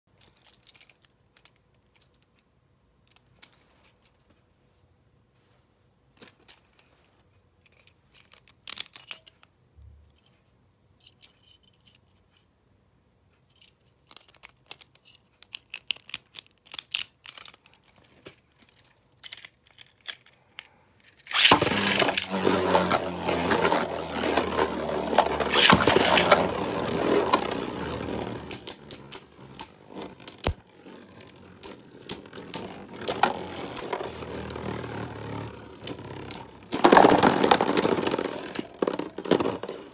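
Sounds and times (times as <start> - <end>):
spinning tops whirring: 21.3 - 39.9
tops clacking together: 21.3 - 39.9.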